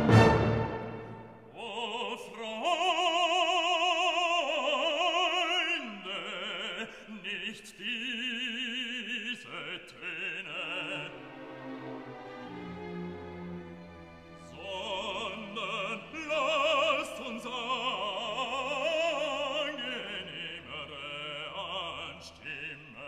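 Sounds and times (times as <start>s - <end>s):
orchestral chord: 0.0s - 1.5s
operatic voice singing: 1.4s - 11.6s, 14.4s - 23.0s.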